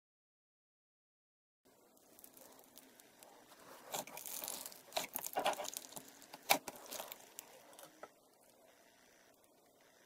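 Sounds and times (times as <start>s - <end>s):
slime crackling and popping: 1.8s - 7.9s
hand squeezing slime: 2.0s - 7.5s.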